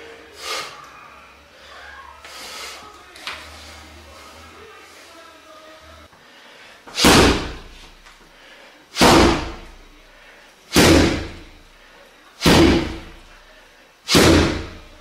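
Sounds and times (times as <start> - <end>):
heavy thuds on pad: 7.0 - 7.7, 9.0 - 9.6, 10.7 - 11.4, 12.4 - 13.1, 14.1 - 14.8.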